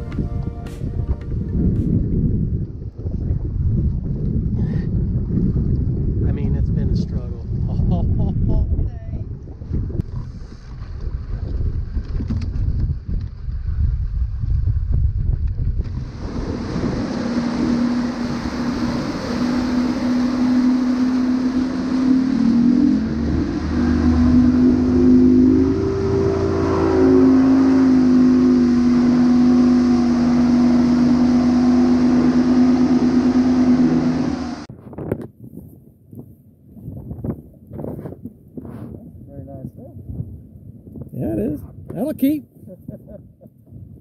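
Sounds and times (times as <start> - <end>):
water rushing: 0.0 - 1.9, 15.8 - 34.7
outboard motor running: 0.0 - 6.1, 15.6 - 34.7
wind: 0.0 - 44.0.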